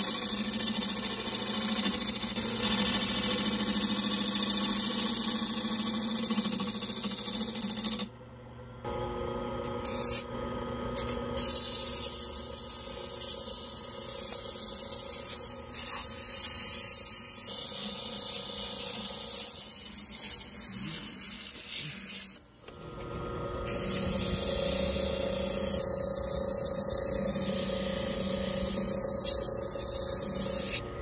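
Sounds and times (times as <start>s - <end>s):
sandpaper hissing on spinning wood: 0.0s - 8.0s, 11.4s - 22.4s, 23.7s - 30.8s
lathe hum: 0.0s - 8.1s, 11.6s - 21.8s, 22.4s - 31.0s.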